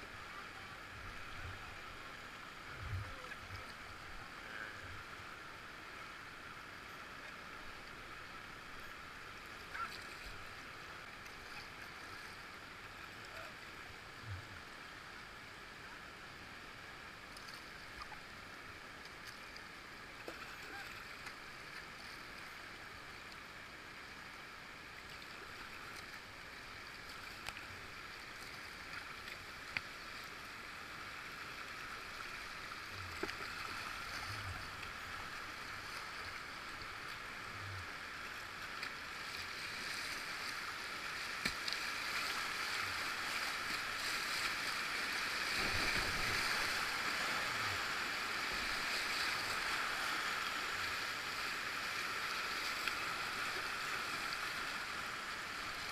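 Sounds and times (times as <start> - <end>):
river rapids rushing: 40.8 - 55.9.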